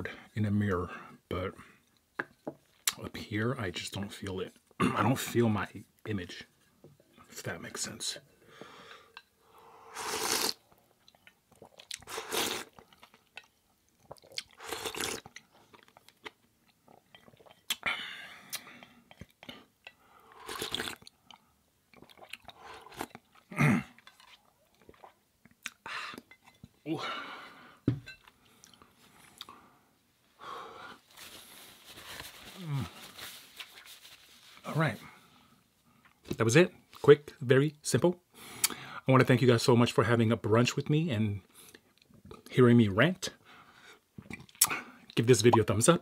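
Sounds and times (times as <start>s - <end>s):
slurping noodles: 9.9s - 10.6s, 11.6s - 12.8s, 14.0s - 15.3s, 20.3s - 21.1s
eating mouth sounds: 10.0s - 13.2s, 14.0s - 16.4s, 20.4s - 21.1s
chewing: 20.4s - 26.5s
napkin rubbing across mouth: 31.1s - 34.7s
mouth clicks: 44.2s - 44.8s.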